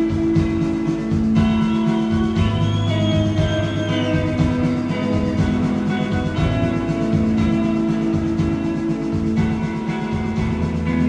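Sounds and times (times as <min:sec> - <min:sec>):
bass guitar: 0:00.0 - 0:11.0
steady drum beat: 0:00.0 - 0:11.0
sustained electric guitar notes: 0:00.0 - 0:11.0.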